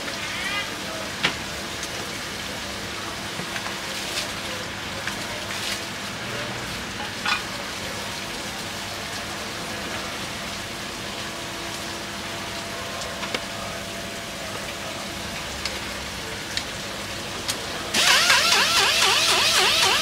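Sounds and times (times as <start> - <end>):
market background hiss: 0.0 - 10.3.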